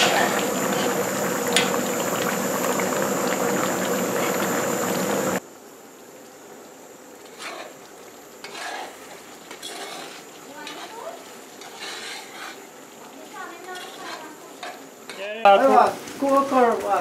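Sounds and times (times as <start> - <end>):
curry bubbling and spluttering in pot: 0.0 - 5.4, 7.1 - 14.8
gas burner hum: 0.0 - 5.4.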